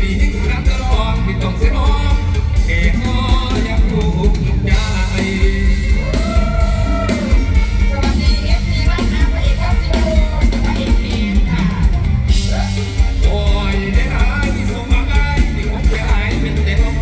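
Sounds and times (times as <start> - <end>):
band music through a pa: 0.0 - 17.0
heavy steady bass beat: 0.0 - 17.0
person singing: 0.0 - 17.0.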